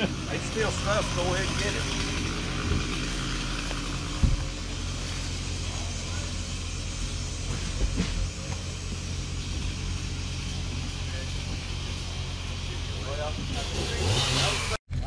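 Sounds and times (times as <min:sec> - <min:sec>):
engine idling: 0:00.0 - 0:15.0
thump: 0:04.2 - 0:04.5.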